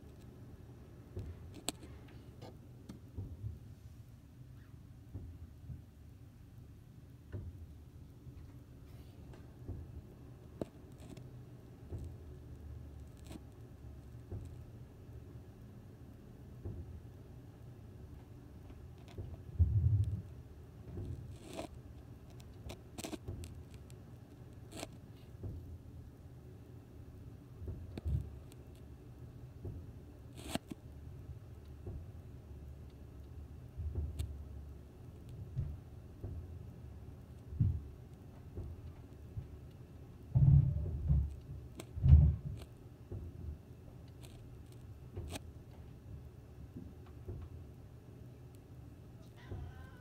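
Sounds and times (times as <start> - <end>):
low muffled thump: 40.3 - 41.3.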